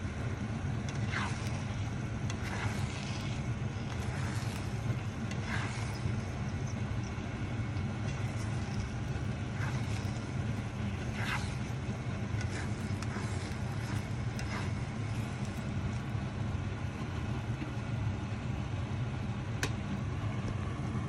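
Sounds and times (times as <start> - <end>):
steady low hum: 0.0 - 21.0
spatula scraping: 0.8 - 7.1, 7.8 - 16.1.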